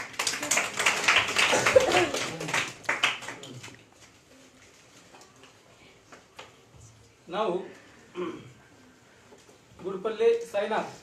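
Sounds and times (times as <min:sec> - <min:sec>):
children clapping: 0:00.0 - 0:04.1.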